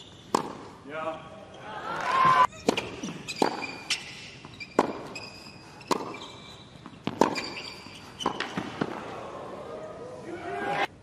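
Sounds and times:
shoes squeaking on court: 0:00.0 - 0:00.7, 0:02.5 - 0:09.0
racket striking tennis ball: 0:00.3 - 0:00.8, 0:02.5 - 0:09.0.

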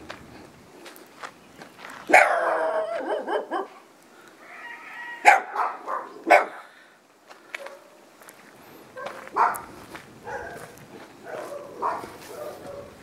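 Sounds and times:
small dog barking: 0:02.1 - 0:03.8, 0:05.2 - 0:06.7, 0:07.6 - 0:08.0, 0:09.0 - 0:13.0.

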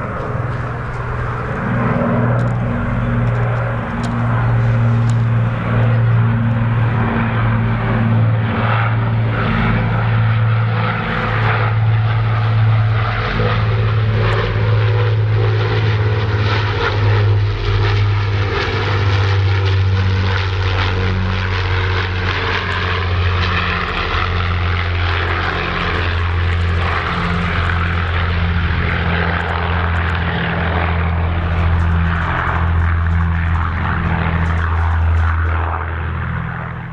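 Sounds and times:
aircraft engines droning overhead: 0:00.0 - 0:36.9.

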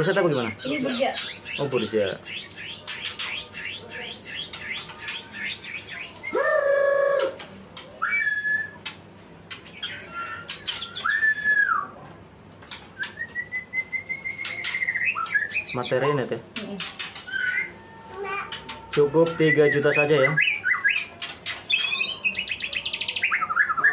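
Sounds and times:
songbird singing: 0:12.4 - 0:23.9.

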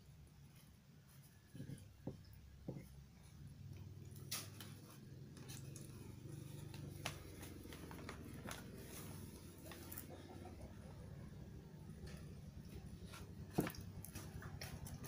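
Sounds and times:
steady low hum: 0:00.0 - 0:15.0
paper crinkling: 0:04.2 - 0:10.1.

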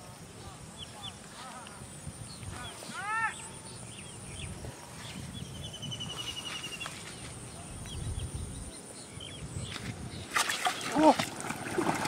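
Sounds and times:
small birds chirping: 0:00.4 - 0:11.2
wind rumble: 0:01.7 - 0:10.4.

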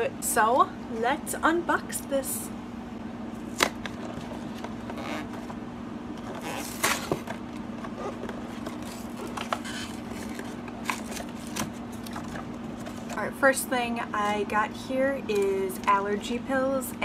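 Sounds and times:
steady low hum: 0:00.0 - 0:17.0
cardboard scraping and rustling: 0:03.5 - 0:05.6, 0:06.2 - 0:13.2.

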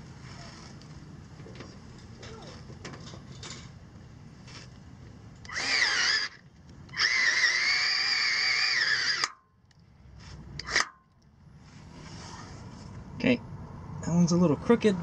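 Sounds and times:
cordless drill whining: 0:05.4 - 0:09.3.

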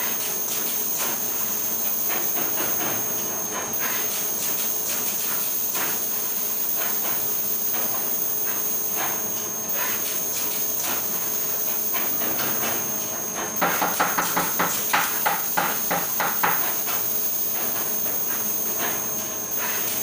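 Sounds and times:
machine hiss with high whine: 0:00.0 - 0:20.0.

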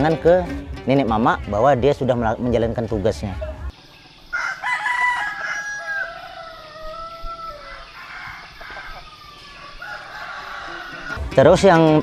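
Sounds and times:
roosters crowing: 0:03.7 - 0:11.3.

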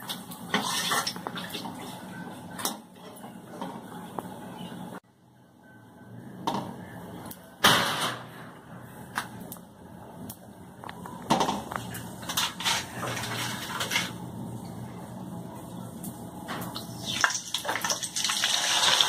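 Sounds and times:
papad sizzling in hot oil: 0:17.0 - 0:19.0.

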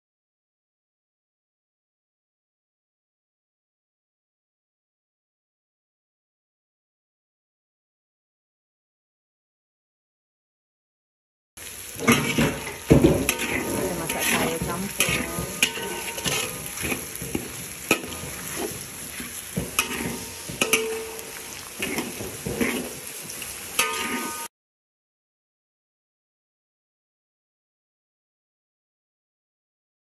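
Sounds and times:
food sizzling: 0:11.6 - 0:24.5
metal spatula scraping a wok: 0:11.6 - 0:24.5.

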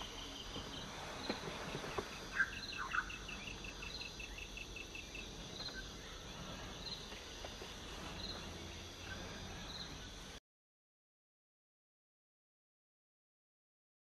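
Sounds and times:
insects calling: 0:00.0 - 0:10.4
steady low background noise: 0:00.0 - 0:10.4.

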